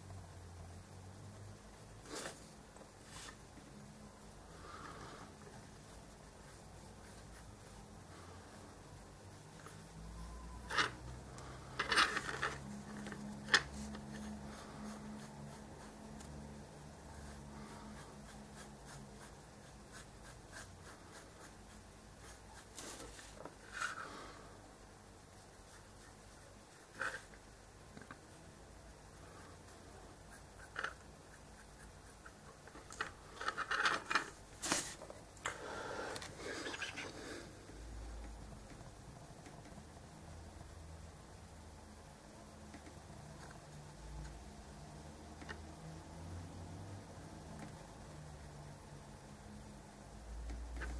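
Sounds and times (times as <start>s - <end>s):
faint low hum: 0.0s - 50.9s
scratchy rustles: 10.6s - 24.2s, 25.4s - 28.4s.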